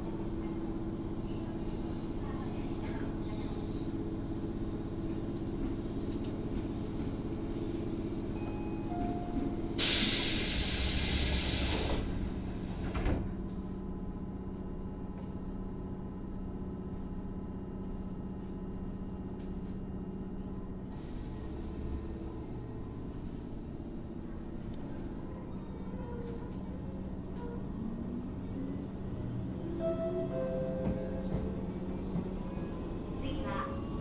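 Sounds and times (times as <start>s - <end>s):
compressed air hiss: 9.8s - 12.0s.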